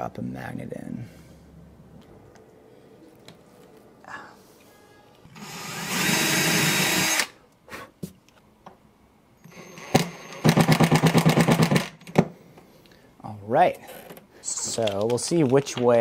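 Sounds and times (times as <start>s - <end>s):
cordless drill motor whining: 5.3s - 7.3s
drill rapid pulsing: 5.4s - 7.3s.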